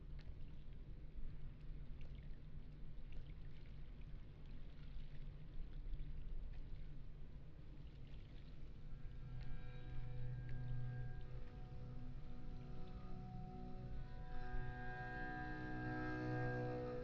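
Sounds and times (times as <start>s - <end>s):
low steady rumble: 0.0s - 17.0s
soft sustained music tones: 0.0s - 17.0s
water lapping and splashing: 0.1s - 13.2s.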